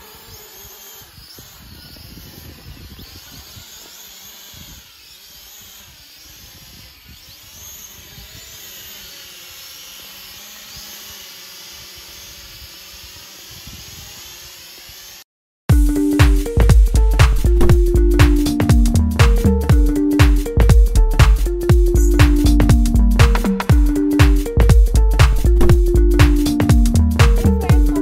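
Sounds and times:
high insect buzzing: 0.0 - 28.0
wind buffeting microphone: 1.1 - 3.7.

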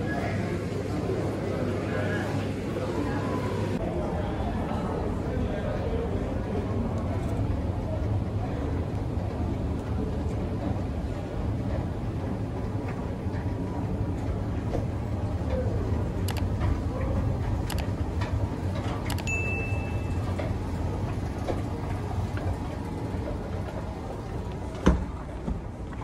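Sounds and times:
escalator humming: 7.8 - 26.0
brief high beep: 19.2 - 20.3.

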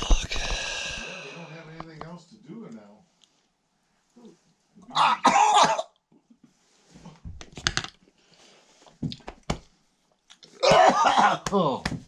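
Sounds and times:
man chewing and breathing: 0.0 - 1.4.

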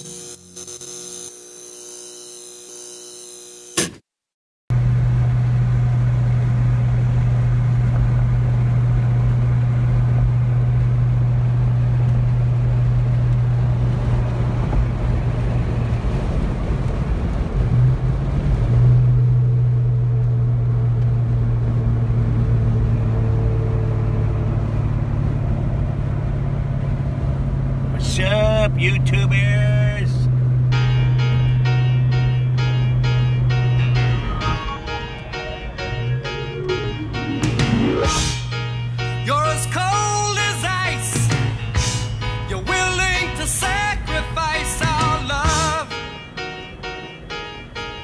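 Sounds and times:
car engine drone from inside: 4.7 - 48.0
intro music sting: 32.7 - 39.8.

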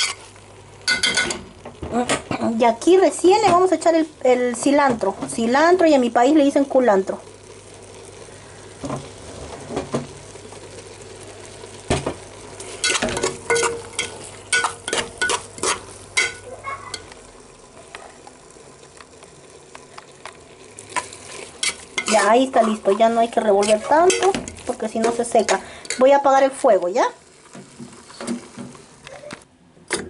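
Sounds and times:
low steady sizzle: 0.0 - 30.0
metal spoon scraping metal pot: 21.0 - 23.0.

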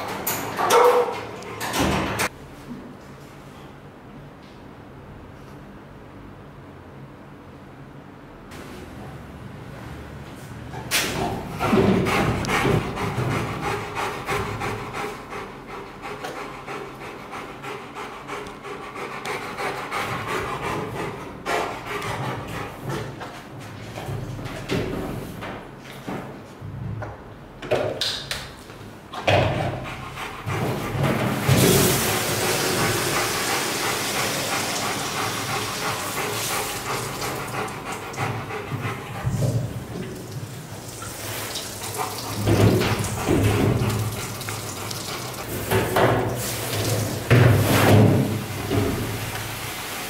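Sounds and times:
dog panting: 11.3 - 23.6, 29.4 - 40.4, 41.8 - 45.8
brush scrubbing wet fur: 31.6 - 37.2.

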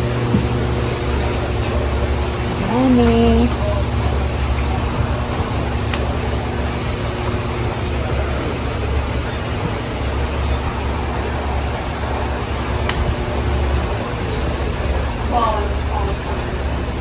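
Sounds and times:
faint steady hum: 0.0 - 17.0
heavy low rumble: 0.0 - 17.0.

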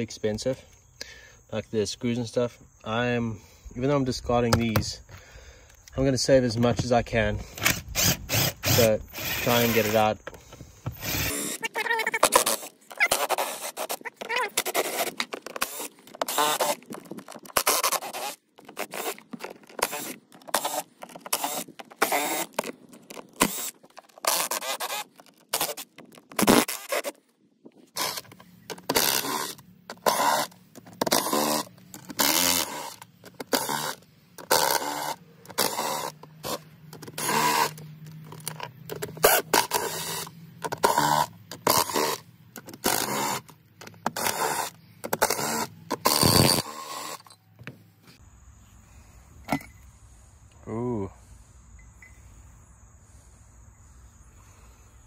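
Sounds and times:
cordless driver backing out screws: 6.6 - 27.0, 28.0 - 47.4.

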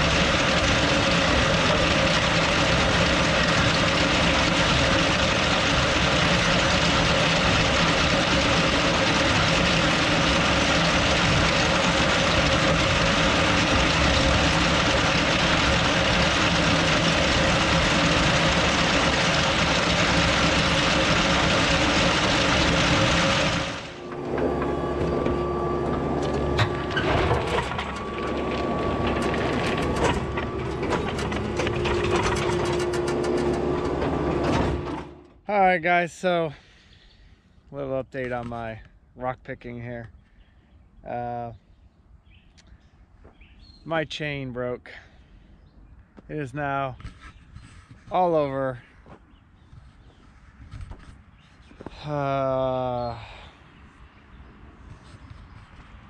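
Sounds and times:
rock picker clattering: 0.0 - 35.2
tractor engine running: 0.0 - 36.9.

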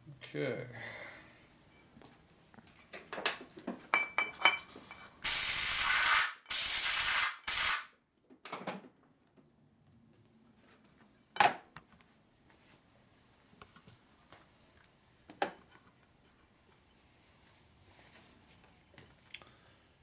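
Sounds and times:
compressed air gun hissing: 5.2 - 7.9.

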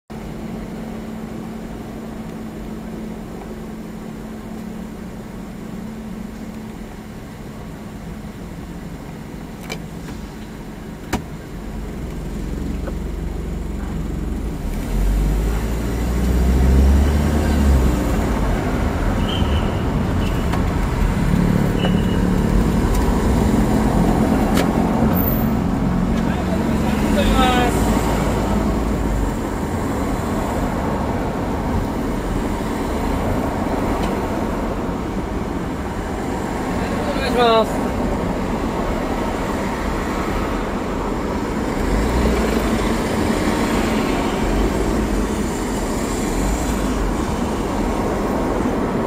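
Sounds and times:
van engine idling: 0.1 - 14.6
road rumble: 0.1 - 49.0.

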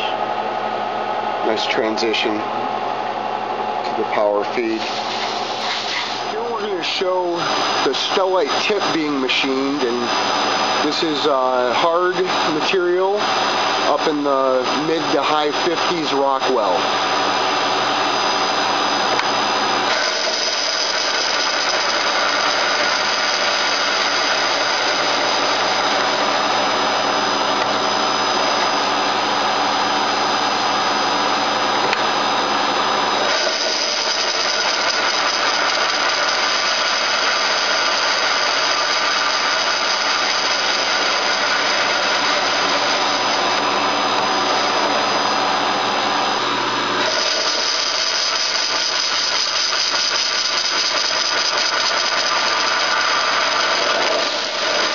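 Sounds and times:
lathe machine whine: 0.0 - 54.9
hiss of the cut: 4.8 - 6.2.

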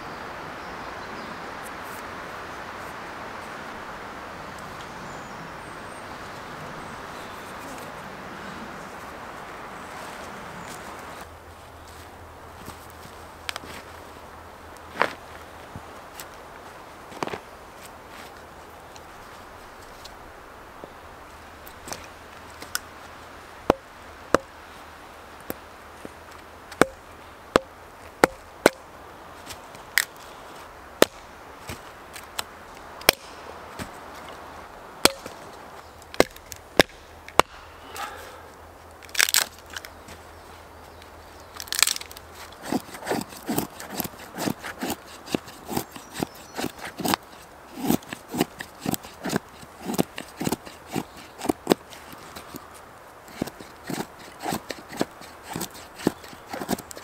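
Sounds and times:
hatchet chopping wood: 23.7 - 24.5, 26.7 - 27.0, 27.6 - 28.8, 31.0 - 31.8, 33.0 - 33.5, 35.0 - 35.4, 36.1 - 38.2, 41.6 - 52.5, 53.3 - 57.0
knife shaving wood: 41.4 - 57.0.

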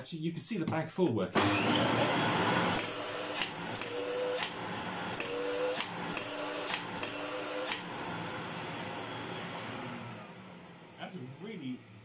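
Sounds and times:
vacuum cleaner running: 1.4 - 12.0.

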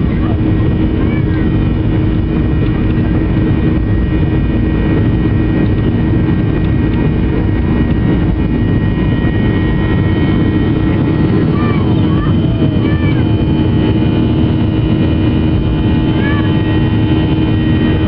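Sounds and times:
jet engines roaring: 0.0 - 18.0
thin steady engine whine: 0.0 - 18.0.

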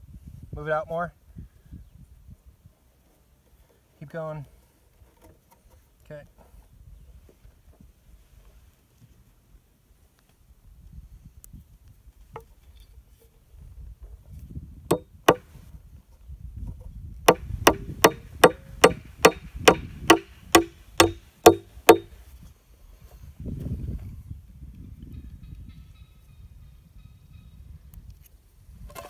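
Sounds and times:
hammer driving nails into wood: 14.9 - 15.5, 17.3 - 22.1.

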